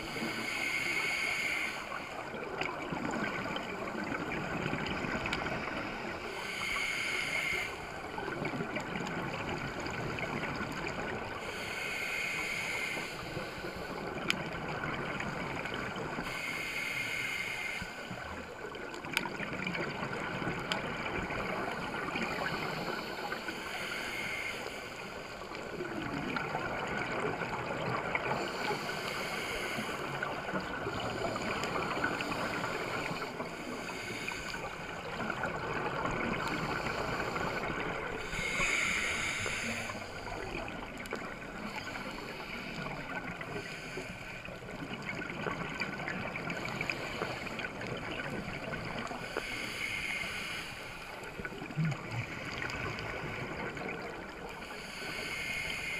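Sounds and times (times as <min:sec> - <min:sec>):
regulator inhale hiss: 0:00.0 - 0:02.3, 0:05.3 - 0:08.4, 0:10.8 - 0:14.4, 0:15.6 - 0:18.2, 0:21.4 - 0:35.5, 0:36.4 - 0:45.6, 0:46.5 - 0:51.6, 0:52.2 - 0:55.9
exhaled bubbles gurgling: 0:00.0 - 0:55.9.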